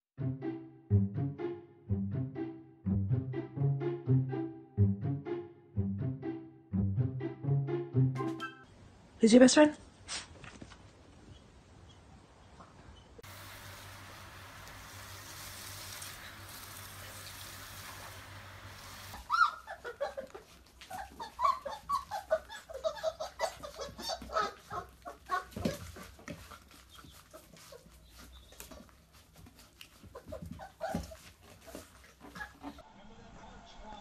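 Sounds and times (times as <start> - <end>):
steady background hiss: 13.2 - 19.2
puppies squeaking and whining: 19.1 - 32.8.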